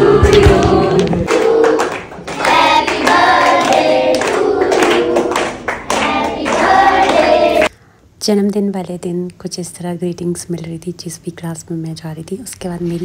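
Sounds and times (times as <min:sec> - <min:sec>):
children singing together: 0:00.0 - 0:07.7
hand-clapping: 0:00.2 - 0:07.7.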